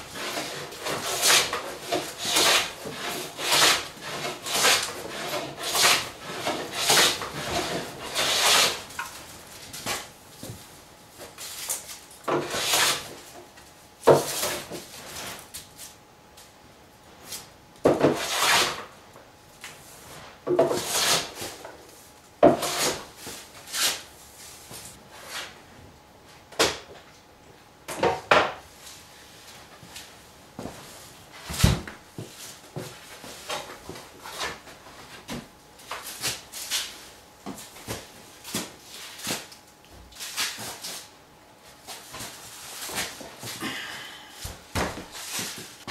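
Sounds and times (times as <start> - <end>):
hand plane strokes on wood: 0.1 - 8.8, 20.8 - 21.3.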